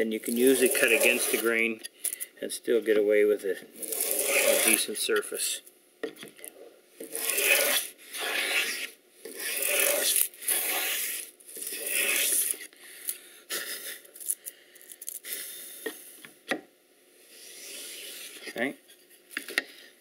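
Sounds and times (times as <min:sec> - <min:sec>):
plane blade rasping swish: 0:00.3 - 0:01.5, 0:03.8 - 0:04.8, 0:07.0 - 0:12.6.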